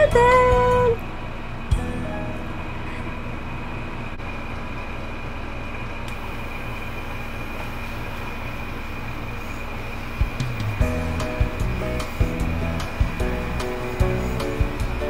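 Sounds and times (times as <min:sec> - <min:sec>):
electric hair clippers humming: 0:10.2 - 0:15.0.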